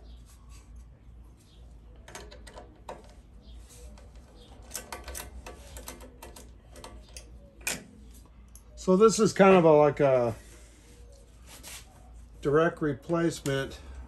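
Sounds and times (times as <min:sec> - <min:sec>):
allen key turning screws: 0:04.0 - 0:08.0.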